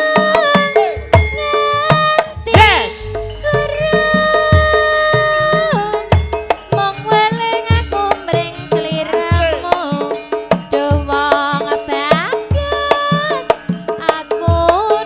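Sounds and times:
woman singing ornamented notes: 0.0s - 15.0s
gamelan ensemble: 0.2s - 14.2s
hand drum strokes: 1.2s - 9.0s.

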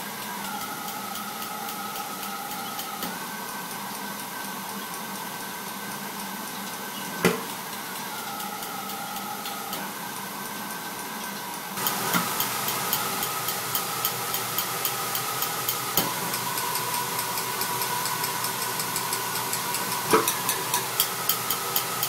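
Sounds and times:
gas burner hissing: 0.0s - 22.0s
spark igniter ticking: 11.8s - 22.0s.

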